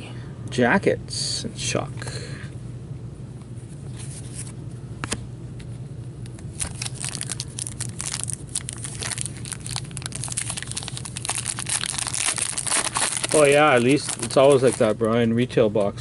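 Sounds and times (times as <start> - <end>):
foil wrapper crinkling and tearing: 6.4 - 15.1.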